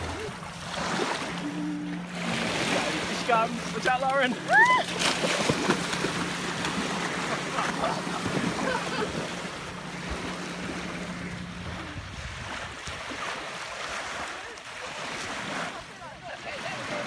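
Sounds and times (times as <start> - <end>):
splashing in shallow water: 0.0 - 17.0
waves lapping on shore: 0.0 - 17.0
wind buffeting microphone: 10.0 - 13.5.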